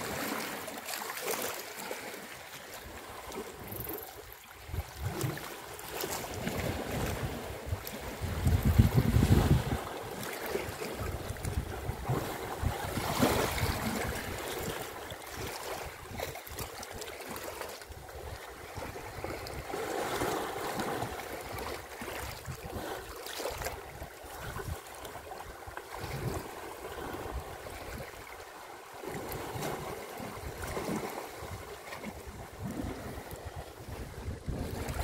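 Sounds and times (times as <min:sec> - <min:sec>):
water sloshing and splashing: 0:00.0 - 0:35.0
wind buffeting microphone: 0:06.1 - 0:10.0, 0:10.9 - 0:16.4, 0:30.3 - 0:35.0.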